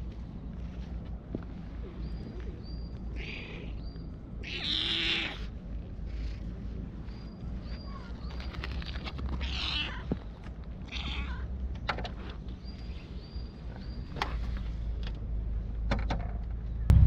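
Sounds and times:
cat meowing: 4.4s - 5.5s, 9.4s - 10.2s, 10.9s - 11.5s.

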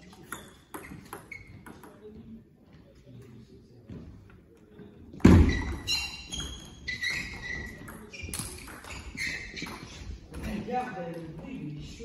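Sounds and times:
shoe squeaks on sports floor: 0.1s - 2.0s, 5.2s - 10.2s.

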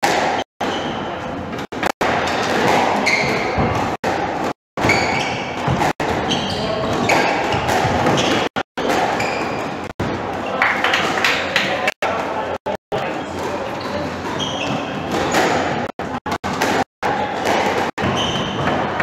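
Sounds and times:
ball hitting walls: 1.5s - 9.5s, 13.4s - 19.0s
squash ball struck by rackets: 1.7s - 9.3s, 14.2s - 19.0s
shoes squeaking on wooden floor: 2.7s - 4.0s, 4.8s - 9.9s, 13.2s - 15.4s, 17.9s - 19.0s.

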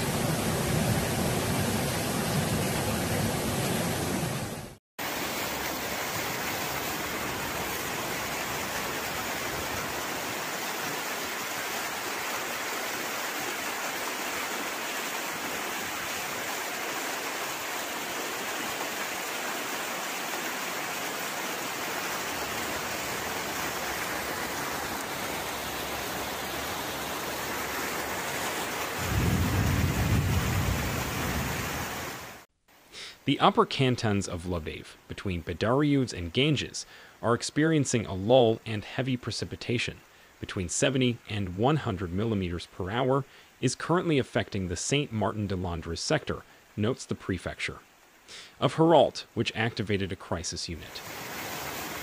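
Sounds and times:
floodwater rushing: 0.0s - 32.5s, 50.7s - 52.0s
heavy rain: 0.0s - 32.5s, 50.7s - 52.0s.

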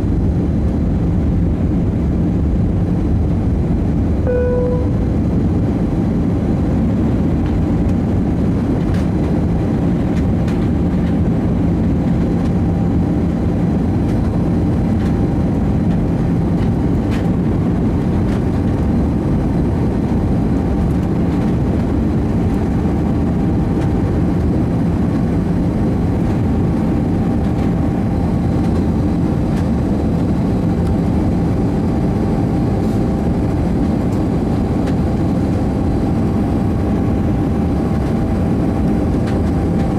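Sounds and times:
jet engines humming: 0.0s - 39.9s
faint steady whine: 4.2s - 5.6s.

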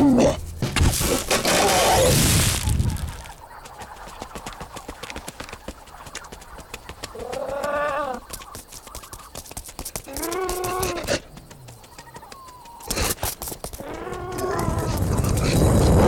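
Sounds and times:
quick light footsteps: 2.6s - 15.6s.

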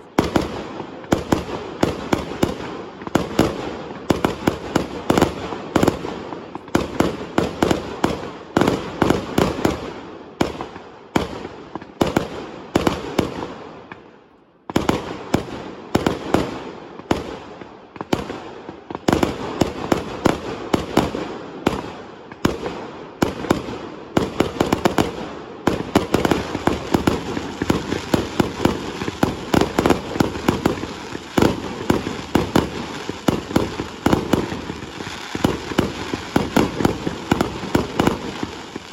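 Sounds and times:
fireworks banging: 18.0s - 38.9s.

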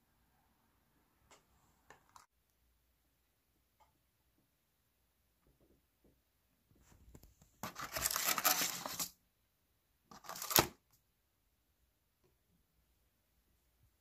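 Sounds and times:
plastic sachet tearing: 7.6s - 9.1s, 10.1s - 10.8s
plastic crinkle: 7.6s - 9.2s.

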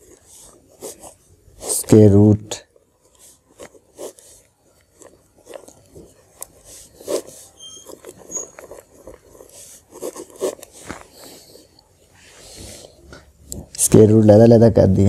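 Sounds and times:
pen scratching on paper: 0.0s - 2.0s, 3.0s - 11.7s.

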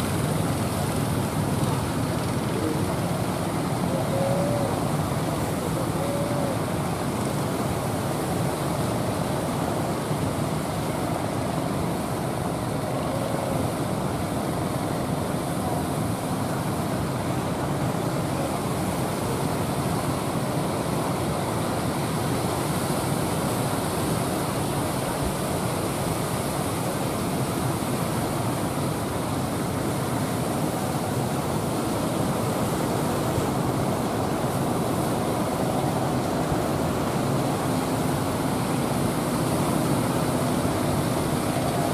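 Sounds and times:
boat engines running: 0.0s - 41.9s.

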